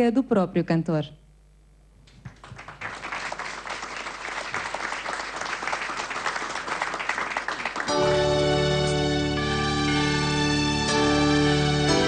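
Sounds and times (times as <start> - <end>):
audience applauding: 2.2 - 9.2.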